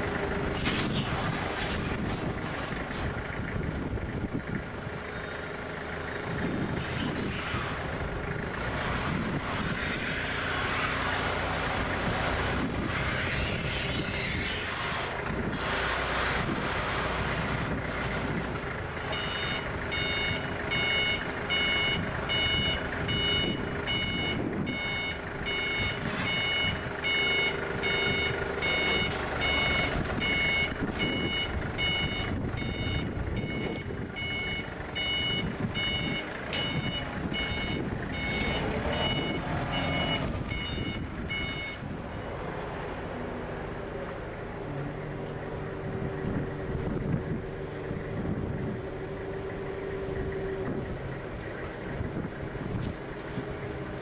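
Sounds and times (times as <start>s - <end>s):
forklift engine running: 0.0s - 54.0s
forklift backup alarm beeping: 19.0s - 42.4s.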